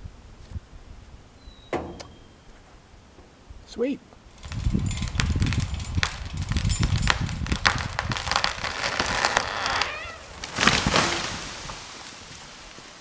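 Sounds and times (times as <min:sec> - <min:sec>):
wood creaking: 0:04.3 - 0:11.8
tree trunk cracking and popping: 0:04.3 - 0:12.8
tree crashing to ground: 0:04.3 - 0:13.0.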